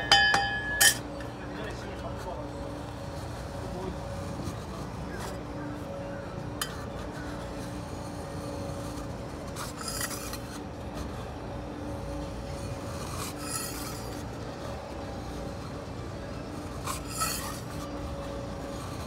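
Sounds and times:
steady low hum: 0.0 - 19.0
metal spatulas scraping steel plate: 0.5 - 1.0, 9.6 - 10.6, 13.2 - 14.2, 16.9 - 17.9.

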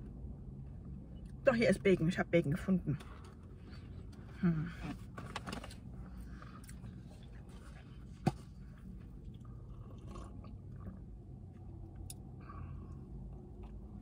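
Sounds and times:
low steady hum: 0.0 - 14.0
person chewing food: 6.2 - 12.3.

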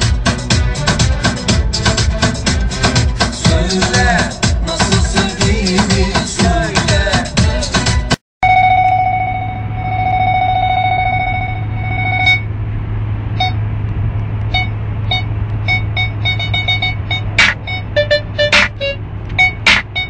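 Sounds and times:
parking sensor beeps: 8.4 - 12.5, 13.4 - 13.6, 14.5 - 20.0
continuous electronic tone: 8.4 - 12.6, 13.4 - 13.7, 14.4 - 20.0.

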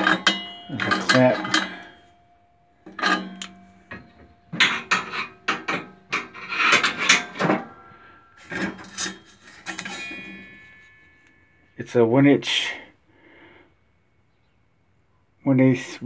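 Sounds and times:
metal knock with ringing: 0.0 - 11.8
metal scraping on metal: 0.0 - 12.0.

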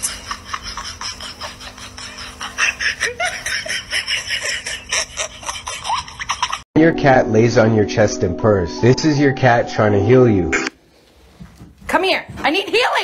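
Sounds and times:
person laughing: 0.0 - 6.6.

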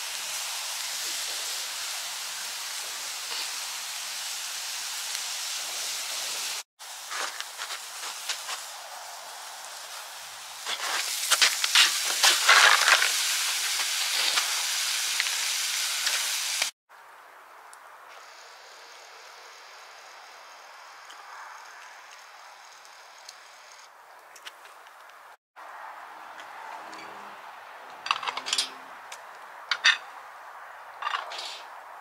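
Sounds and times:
meat sizzling in skillet: 0.0 - 16.8
wood fire crackles and pops: 0.0 - 16.8.

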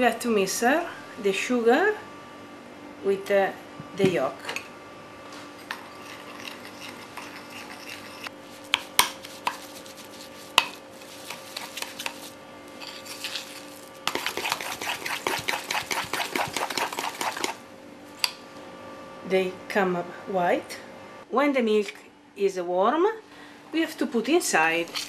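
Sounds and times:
fork beating eggs in bowl: 5.6 - 17.6, 24.7 - 25.0.

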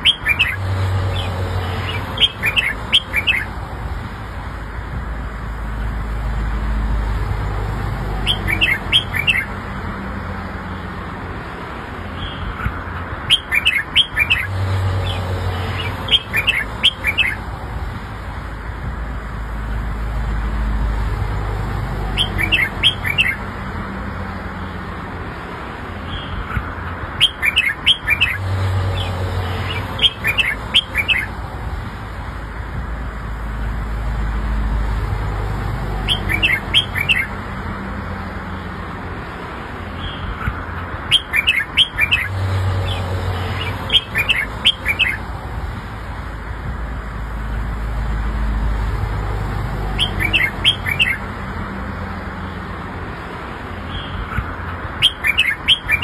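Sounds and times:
bird singing: 0.0 - 3.6, 8.1 - 9.6, 12.2 - 17.5, 22.0 - 23.5, 26.0 - 31.4, 35.9 - 37.4, 40.0 - 45.3, 49.8 - 51.3, 55.0 - 56.0.

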